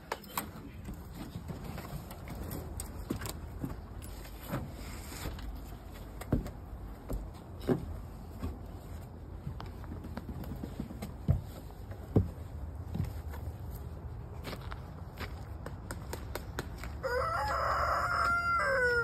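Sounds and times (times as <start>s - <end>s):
footsteps on wooden floorboards: 6.3s - 15.5s.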